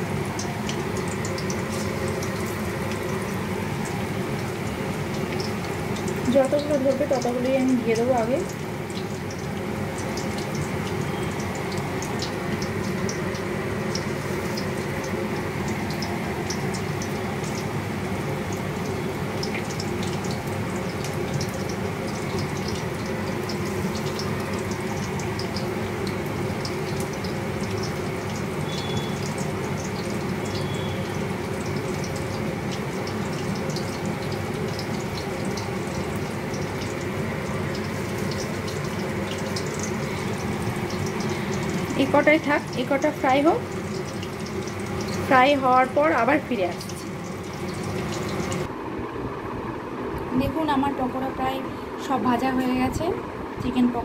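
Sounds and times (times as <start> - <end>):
food deep-frying in oil: 0.0 - 48.8.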